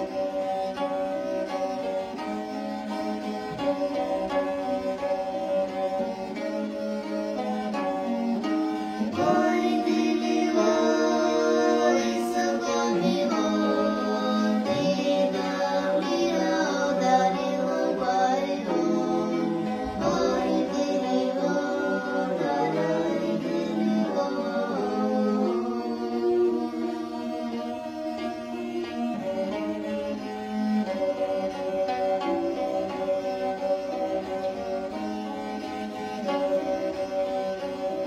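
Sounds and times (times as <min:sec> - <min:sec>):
bowed fiddle drone: 0:00.0 - 0:38.0
plucked harp: 0:00.0 - 0:38.0
voices singing folk song: 0:05.3 - 0:31.1.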